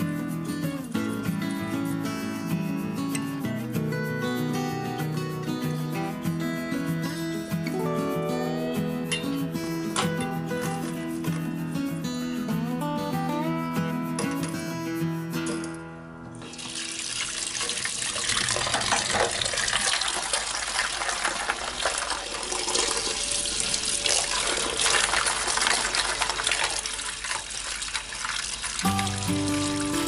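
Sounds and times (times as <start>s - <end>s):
tap water splashing into sink: 16.4s - 23.0s.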